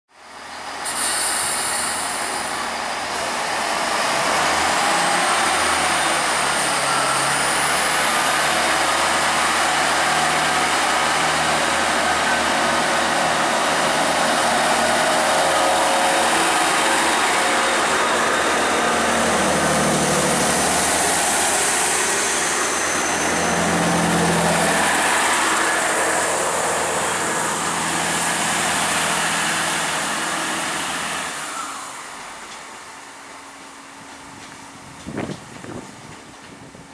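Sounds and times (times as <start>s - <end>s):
train diesel engines droning: 0.1s - 36.9s.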